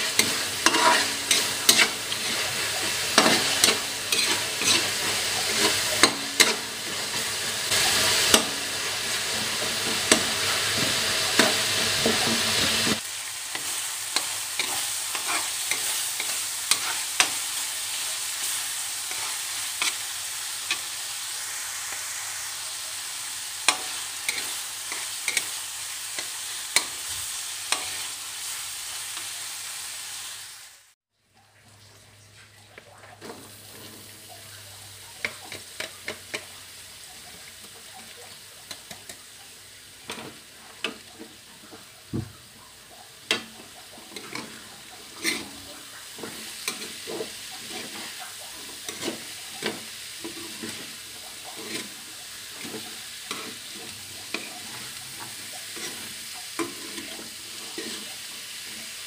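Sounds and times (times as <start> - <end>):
metal spoon scraping a pan: 0.0 - 21.1, 23.6 - 28.2, 43.3 - 59.0
food sizzling in a wok: 0.0 - 31.0, 32.8 - 59.0.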